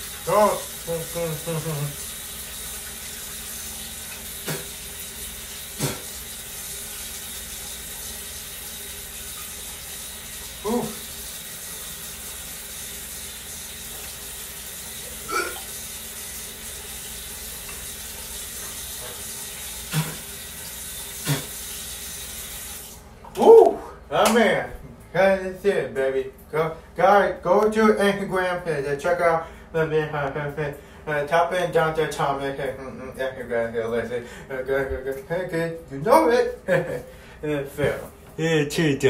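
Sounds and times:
sink tap running: 0.0s - 23.1s.

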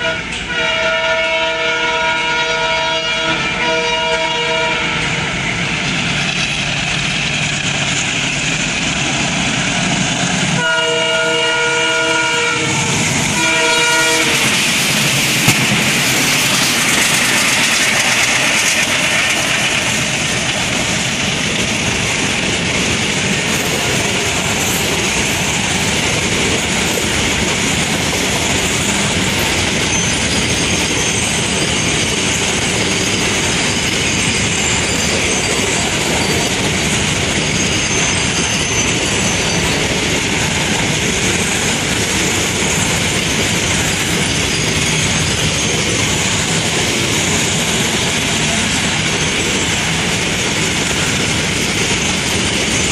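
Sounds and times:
locomotive horn blasts: 0.0s - 5.3s, 10.6s - 14.6s
diesel locomotives chugging: 0.0s - 52.9s
wagon wheels clacking on rails: 12.6s - 52.9s.

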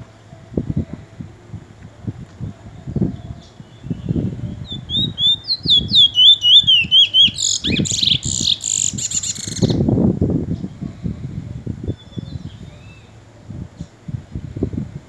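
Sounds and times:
bird singing whistled notes: 3.0s - 9.8s, 11.9s - 13.1s
buzzy bird trill: 3.0s - 9.8s.

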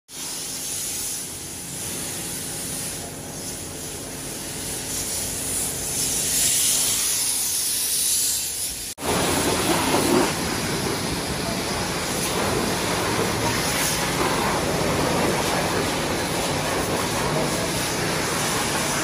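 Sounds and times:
high-pressure hose spraying: 0.1s - 19.0s
deep rushing spray: 9.0s - 19.0s.

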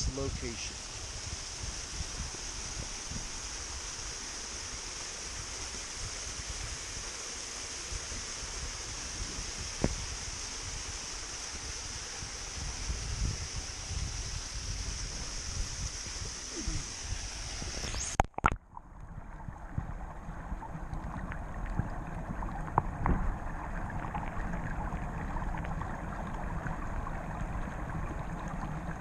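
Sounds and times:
muffled underwater rushing: 0.0s - 29.0s
small underwater clicks: 17.8s - 19.1s, 22.6s - 23.2s.

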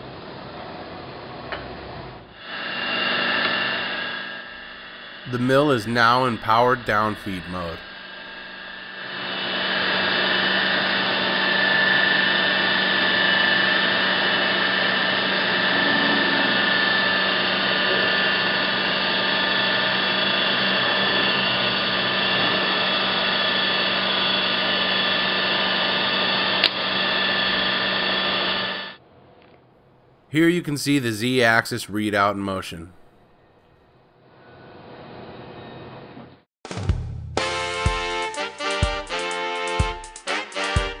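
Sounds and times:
milling machine whine: 2.3s - 29.0s.

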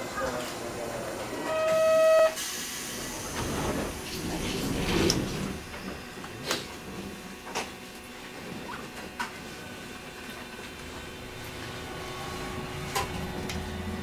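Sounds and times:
tram doors sliding shut: 1.5s - 7.7s, 10.5s - 14.0s.

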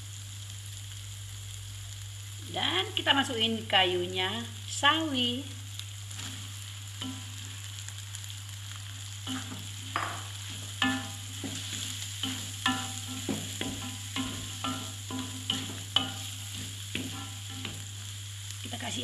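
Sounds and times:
vegetables sizzling in a wok: 0.0s - 19.0s
spatula scraping and knocking wok: 6.1s - 7.5s, 9.2s - 18.4s.

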